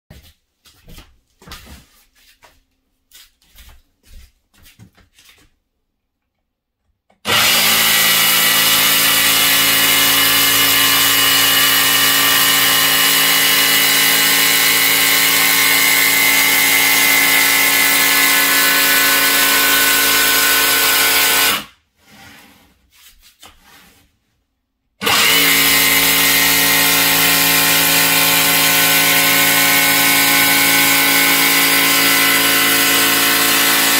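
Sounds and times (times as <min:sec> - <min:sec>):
jigsaw cutting board: 0:07.1 - 0:24.1, 0:25.0 - 0:33.9.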